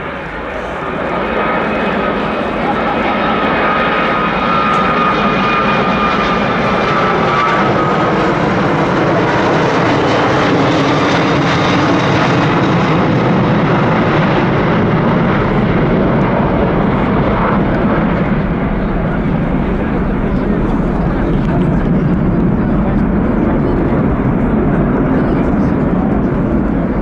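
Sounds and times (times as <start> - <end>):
jet engines rushing: 0.0 - 27.0.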